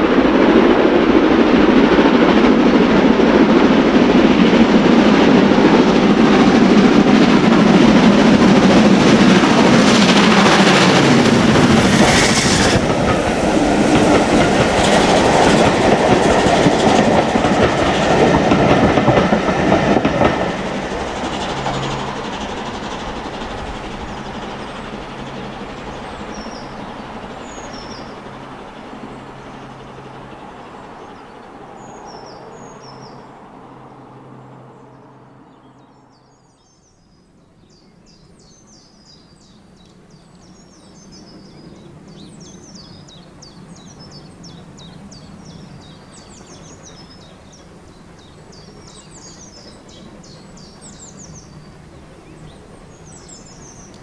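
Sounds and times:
distant steam train rumble: 0.0 - 54.0
train rumble and hum: 0.0 - 54.0
birds chirping: 13.8 - 54.0.

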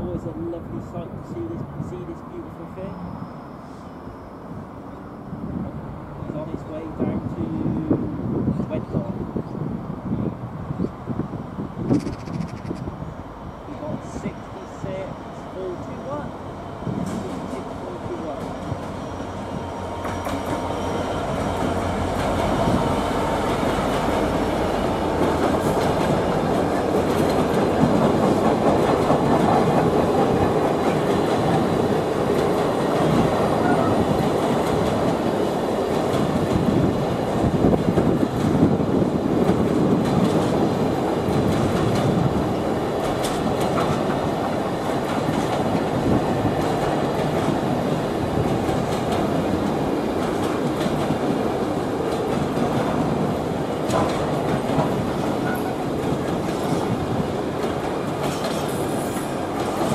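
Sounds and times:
diesel locomotive passing: 0.0 - 59.9
wagons clattering over rail joints: 48.3 - 59.9.

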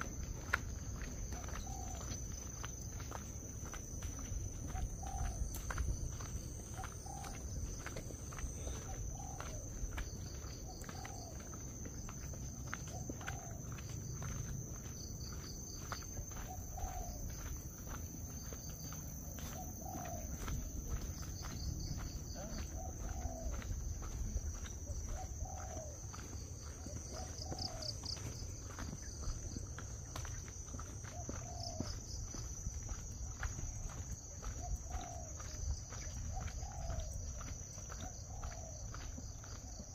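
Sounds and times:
light footsteps: 0.0 - 39.9
bird calling: 1.3 - 2.2, 6.6 - 11.6, 16.3 - 17.4, 19.4 - 20.6, 21.5 - 29.2, 31.1 - 32.0.

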